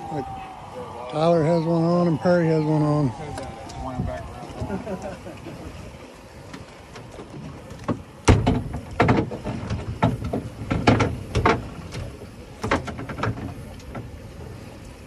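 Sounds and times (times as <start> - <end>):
irregular knocks and clunks: 6.5 - 14.2.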